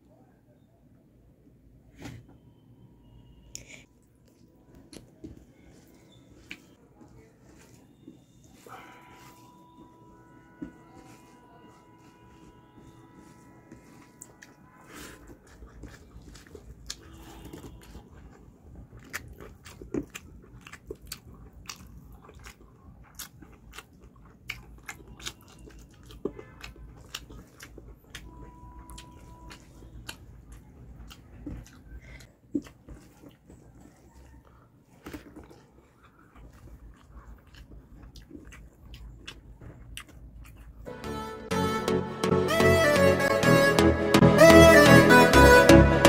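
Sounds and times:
person chewing with wet clicks: 3.5s - 7.2s, 15.2s - 40.9s.

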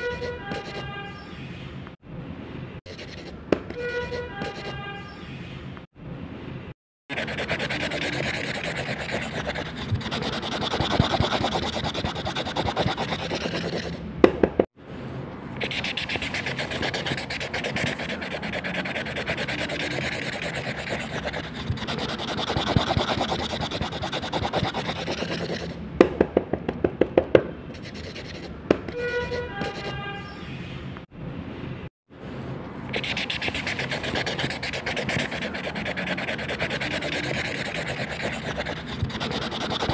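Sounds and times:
pen tips scratching on paper: 0.0s - 0.9s, 2.9s - 4.8s, 7.1s - 14.0s, 15.6s - 25.8s, 27.8s - 30.0s, 32.9s - 39.9s.

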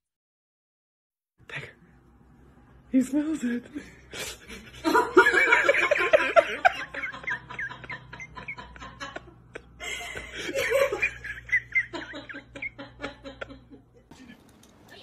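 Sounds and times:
person laughing: 4.1s - 14.4s.

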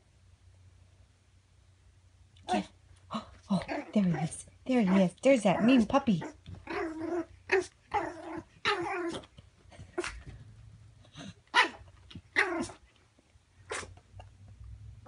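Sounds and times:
puppy barking and growling: 2.4s - 2.8s, 3.5s - 10.2s, 11.0s - 12.9s, 13.6s - 14.2s.

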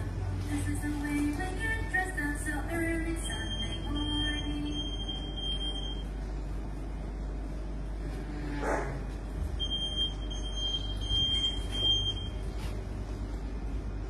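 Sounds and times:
steady low hum: 0.0s - 14.0s
security gate alarm beeping: 3.1s - 6.2s, 9.6s - 12.5s.

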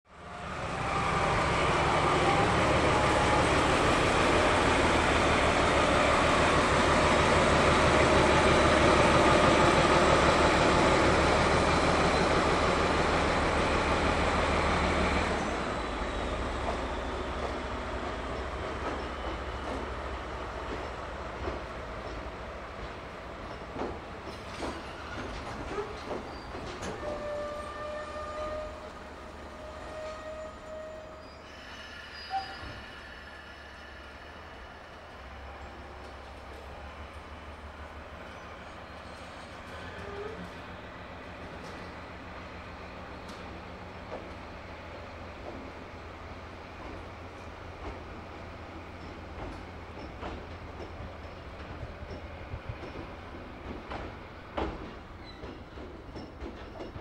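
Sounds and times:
diesel locomotive engine passing: 0.1s - 57.0s
train cars rolling past: 0.2s - 57.0s
faint wheel squeal: 24.8s - 28.8s, 29.9s - 34.7s, 38.3s - 40.6s
wheels clicking over rail joints: 49.0s - 57.0s.

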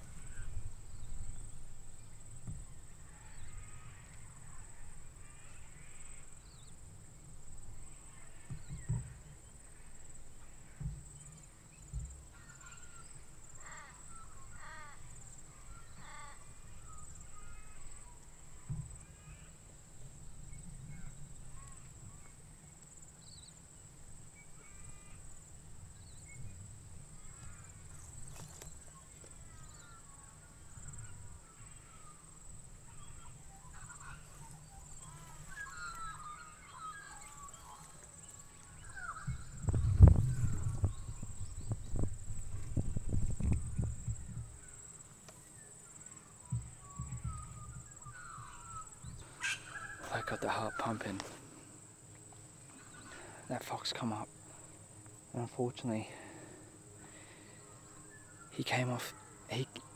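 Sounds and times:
faint bird calls: 0.0s - 59.9s
low rumble on microphone: 39.1s - 45.0s.

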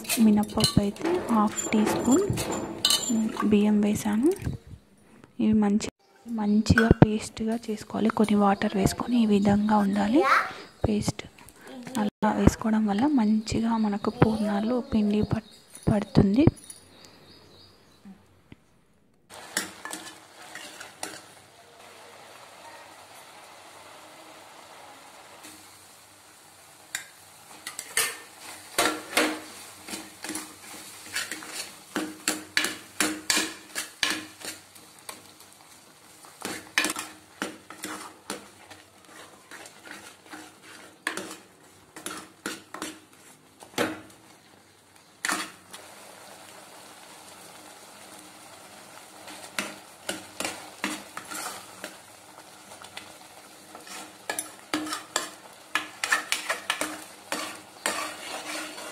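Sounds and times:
spoon scraping a metal pan: 0.0s - 3.7s, 19.4s - 21.4s, 27.6s - 35.3s, 36.4s - 43.1s, 45.2s - 45.7s, 49.6s - 52.0s, 53.7s - 58.9s.

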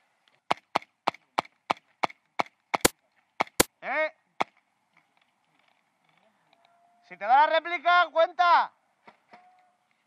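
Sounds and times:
airsoft gun shots: 2.8s - 3.7s.

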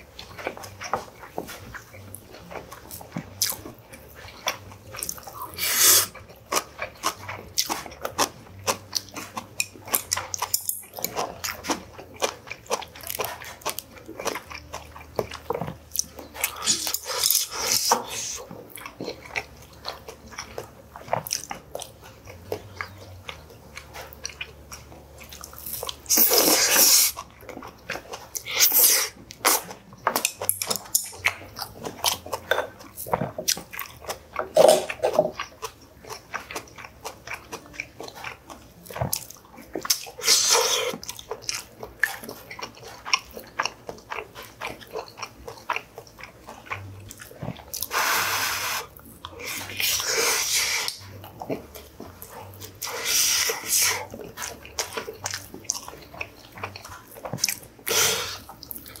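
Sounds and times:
chewing and biting food: 0.0s - 59.0s
utensils clicking on bowls: 9.6s - 11.2s, 30.1s - 31.3s.

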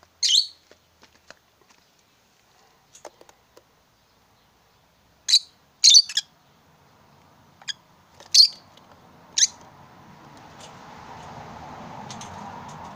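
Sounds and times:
lovebirds chirping: 0.2s - 0.9s, 1.7s - 9.7s.

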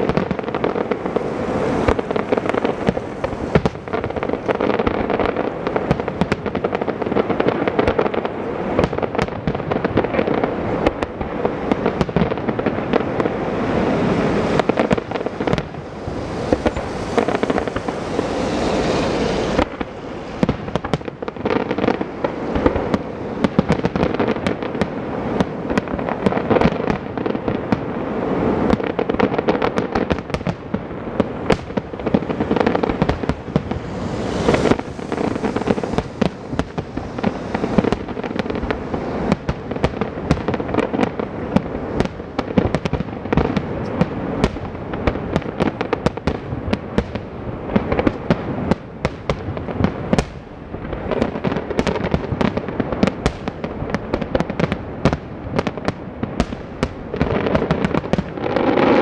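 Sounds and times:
fireworks bangs and crackling: 0.0s - 59.0s
fireworks hissing: 0.0s - 59.0s.

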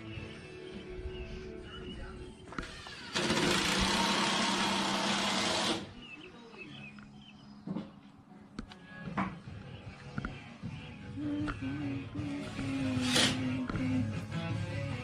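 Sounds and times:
loud mechanical whirring: 2.6s - 5.9s.

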